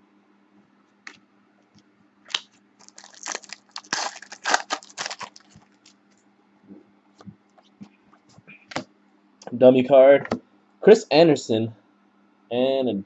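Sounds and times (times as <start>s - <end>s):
foil wrapper crinkling: 2.3s - 6.0s.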